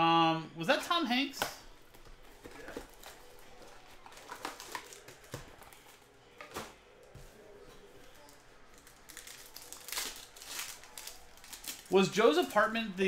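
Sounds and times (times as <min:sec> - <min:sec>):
plastic wrap crinkling: 0:02.0 - 0:06.6, 0:08.0 - 0:13.0.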